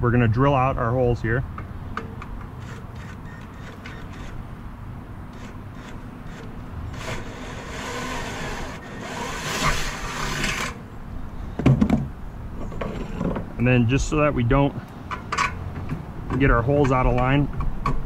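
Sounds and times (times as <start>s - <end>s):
drill boring through wood: 5.4s - 10.8s.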